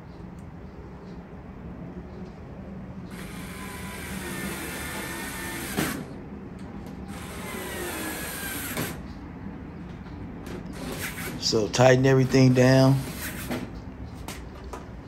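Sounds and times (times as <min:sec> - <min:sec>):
cordless screwdriver whining: 0:03.1 - 0:06.1, 0:07.1 - 0:09.0.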